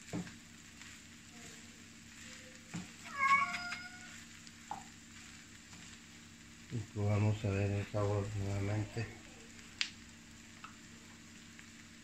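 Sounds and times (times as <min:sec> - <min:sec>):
spatula stirring in frying pan: 0:00.0 - 0:06.7
faint sizzle: 0:00.0 - 0:12.0.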